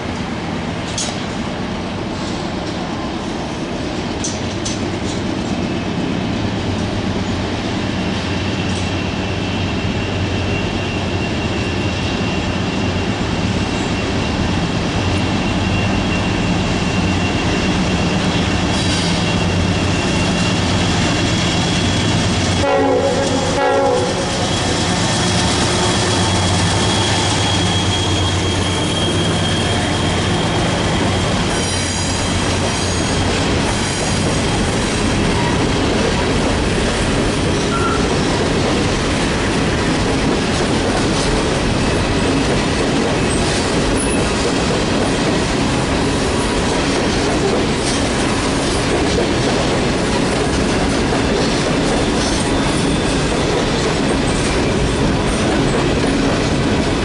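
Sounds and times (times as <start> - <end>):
diesel locomotive engines droning: 0.0 - 57.0
high wheel squeal: 8.6 - 22.6, 23.3 - 35.8, 37.5 - 38.1, 51.9 - 53.4
train horn blast: 22.6 - 26.4.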